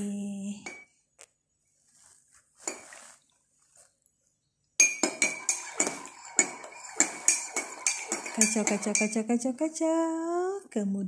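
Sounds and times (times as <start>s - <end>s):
spoon clinking in ceramic mug: 4.8s - 9.2s.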